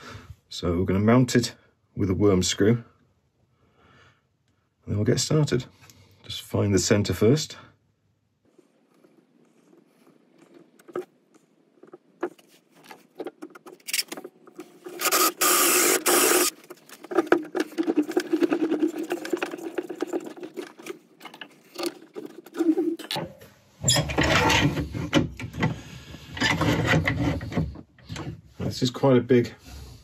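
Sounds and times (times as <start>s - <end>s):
wood scraping strokes: 8.5s - 23.2s.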